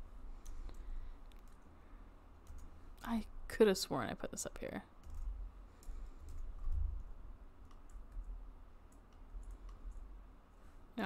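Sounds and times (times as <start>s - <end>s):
low steady rumble: 0.0s - 11.0s
keyboard keys clicking: 2.4s - 2.7s, 5.0s - 8.3s, 8.9s - 10.1s.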